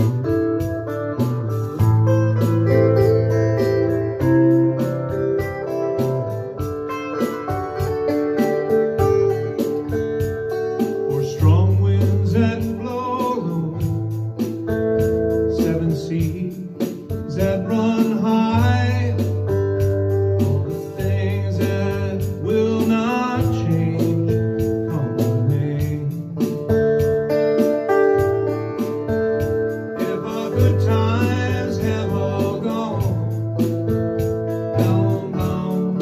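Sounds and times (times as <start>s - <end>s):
strummed electric guitar: 0.0s - 36.0s
man singing: 11.0s - 14.4s, 15.3s - 26.8s, 29.8s - 36.0s.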